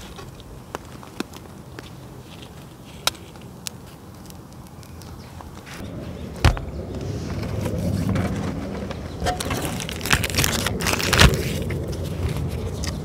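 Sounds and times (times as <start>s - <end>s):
wrapper rustling and crinkling: 9.3s - 13.0s
packet tearing open: 9.4s - 12.4s.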